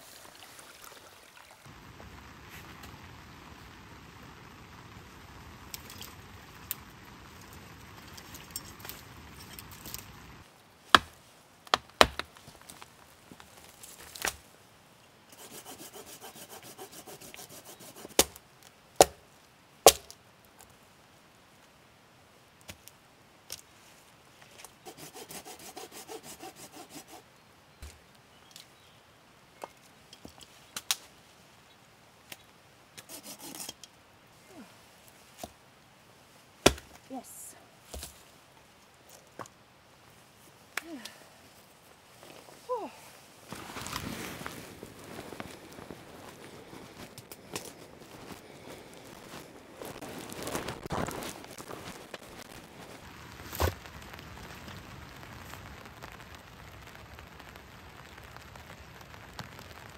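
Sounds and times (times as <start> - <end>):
branches snapping: 7.4 - 14.5, 36.6 - 37.1
branches dragged over ground: 12.3 - 14.5, 41.5 - 55.6
hand saw cutting wood: 15.4 - 18.3, 24.8 - 27.2, 33.0 - 33.8.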